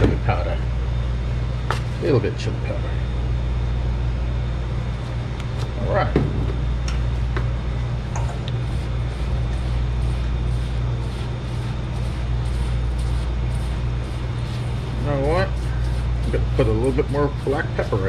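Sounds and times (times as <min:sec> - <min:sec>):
low mechanical hum: 0:00.0 - 0:18.0
spices rustling in metal bowl: 0:08.6 - 0:18.0.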